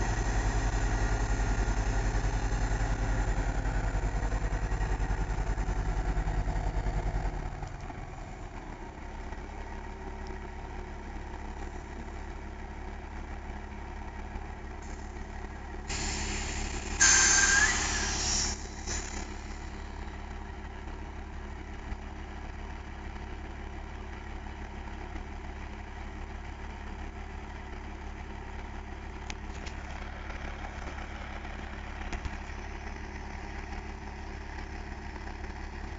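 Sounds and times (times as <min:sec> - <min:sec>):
diesel truck engine idling: 0:00.0 - 0:35.9
loud air hiss: 0:15.9 - 0:19.2.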